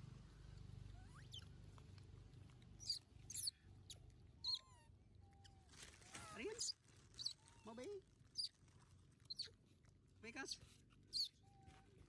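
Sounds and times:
young monkeys squeaking: 0:01.0 - 0:01.5, 0:02.8 - 0:08.6, 0:09.2 - 0:09.6, 0:10.4 - 0:12.0.

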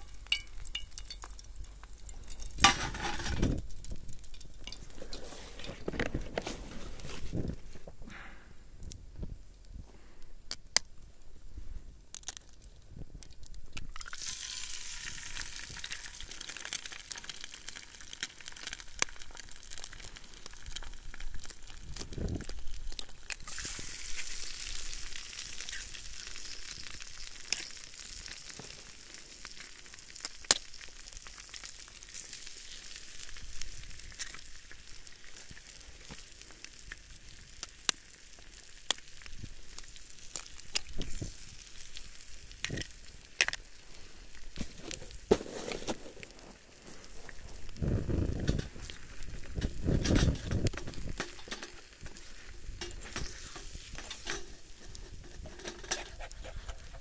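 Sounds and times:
food sizzling in a pan: 0:14.0 - 0:21.6, 0:23.2 - 0:44.5, 0:51.9 - 0:55.1.

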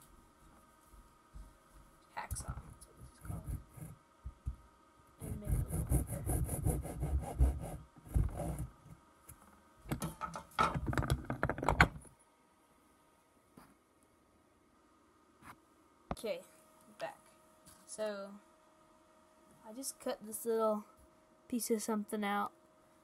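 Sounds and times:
hacksaw sawing wood: 0:05.2 - 0:08.6.

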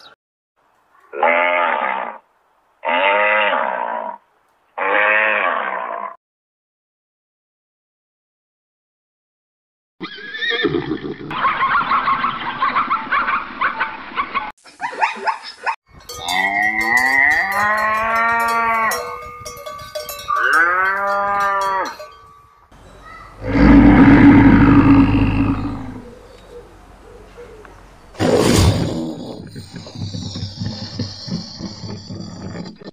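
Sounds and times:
cowbells clanking: 0:15.9 - 0:23.3
cows mooing: 0:16.2 - 0:22.1, 0:23.4 - 0:26.1
big cat roaring: 0:23.4 - 0:26.2.

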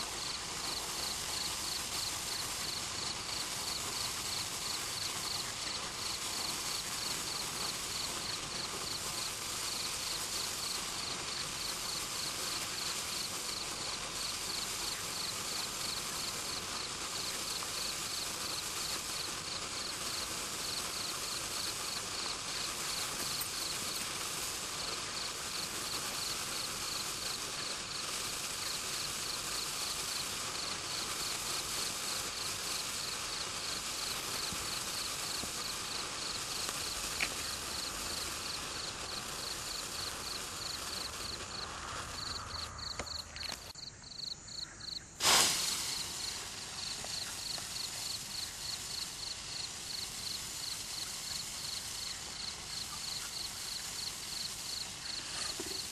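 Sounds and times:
cricket chirping: 0:00.0 - 0:55.9
sparkler fizzing crackle: 0:00.0 - 0:55.9
sharp loud pop: 0:45.2 - 0:46.0.

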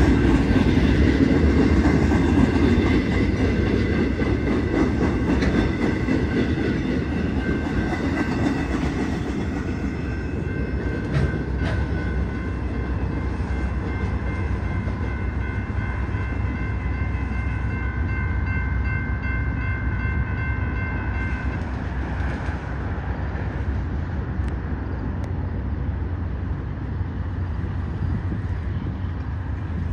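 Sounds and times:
freight train rumbling past: 0:00.0 - 0:29.9
crossing signal bell ringing: 0:05.1 - 0:21.6.

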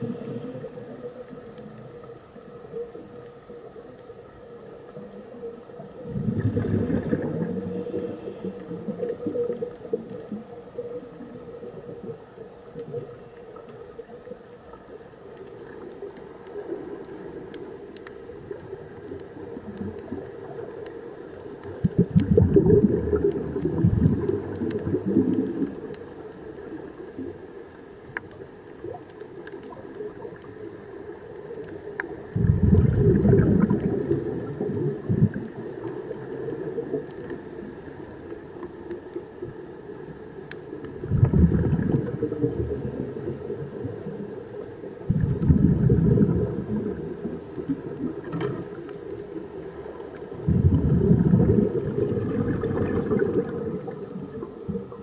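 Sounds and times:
underwater exhaled bubbles rushing: 0:00.0 - 0:15.8, 0:21.6 - 0:27.4, 0:31.4 - 0:38.9, 0:40.8 - 0:55.0
faint underwater clicks: 0:00.0 - 0:55.0
steady underwater hiss: 0:00.0 - 0:55.0.

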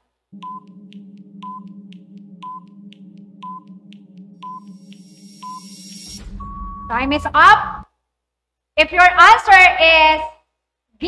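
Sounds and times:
steady low hum: 0:00.2 - 0:07.9
short beeps: 0:00.4 - 0:07.8.

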